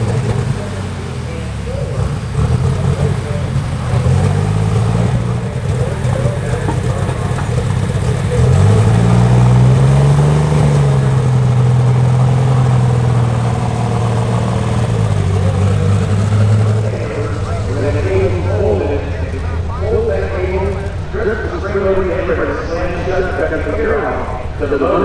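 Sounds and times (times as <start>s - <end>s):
tractor engine revving: 0.0s - 25.0s.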